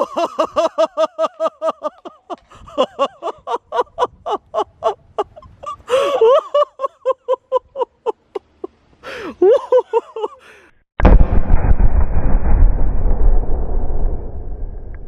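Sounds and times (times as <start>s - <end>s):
woman laughing excitedly: 0.0s - 10.7s.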